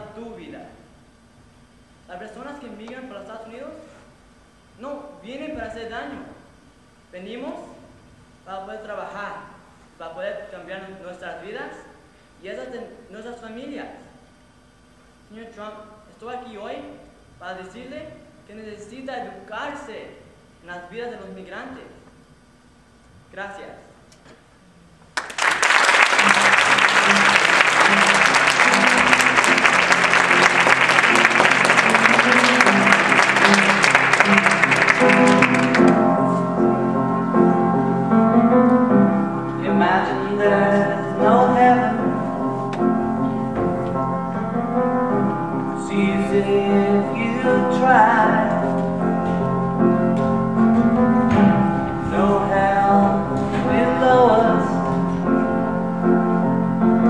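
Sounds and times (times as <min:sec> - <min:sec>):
audience applause: 0:25.2 - 0:36.0
piano music: 0:25.6 - 0:57.0
person singing: 0:39.6 - 0:42.5, 0:52.0 - 0:55.3.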